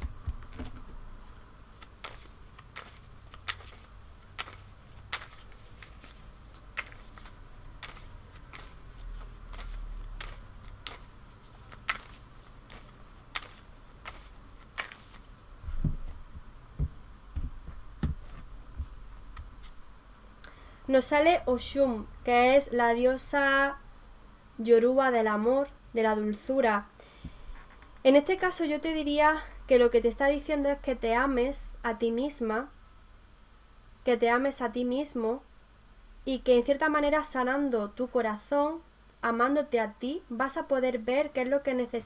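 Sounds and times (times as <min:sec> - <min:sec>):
cards shuffling: 0:00.0 - 0:16.2, 0:17.4 - 0:19.8.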